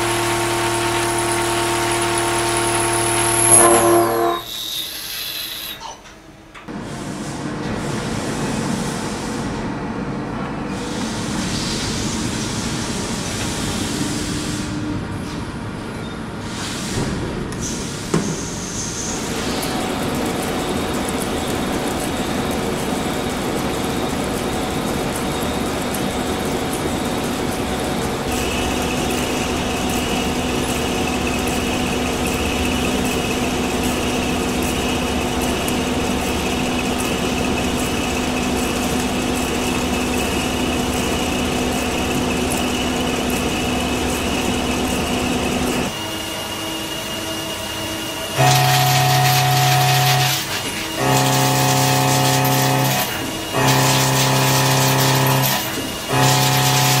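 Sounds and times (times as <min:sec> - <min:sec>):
machining whine: 0:00.0 - 0:04.8, 0:19.0 - 0:57.0
milling cutter cutting steel: 0:00.0 - 0:05.8, 0:48.2 - 0:57.0
higher tone: 0:03.0 - 0:04.5.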